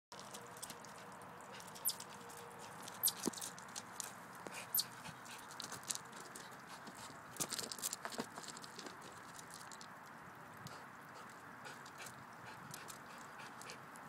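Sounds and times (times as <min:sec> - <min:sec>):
paws crunching on gravel: 0:00.2 - 0:09.8.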